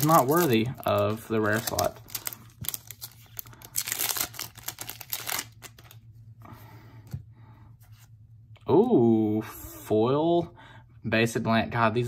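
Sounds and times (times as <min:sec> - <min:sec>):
cards handling: 0:00.0 - 0:06.0
foil wrapper tearing and crinkling: 0:00.0 - 0:06.0.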